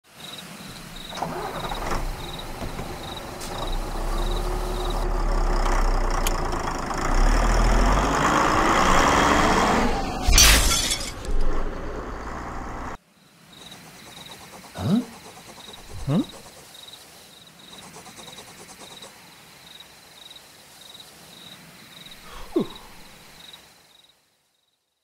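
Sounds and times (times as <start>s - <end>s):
vehicle engine and road noise: 0.7s - 13.0s
crash with shattering glass: 10.2s - 11.3s.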